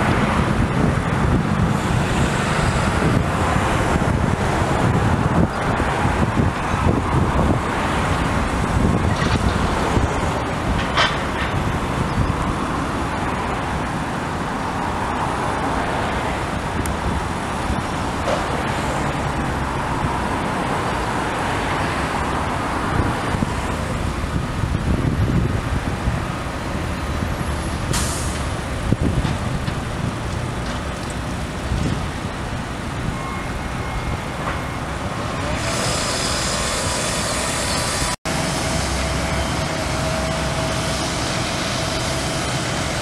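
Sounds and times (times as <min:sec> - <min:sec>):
heavy diesel machinery running: 0:00.0 - 0:14.7, 0:22.0 - 0:43.0
sharp burst of noise: 0:35.5 - 0:43.0.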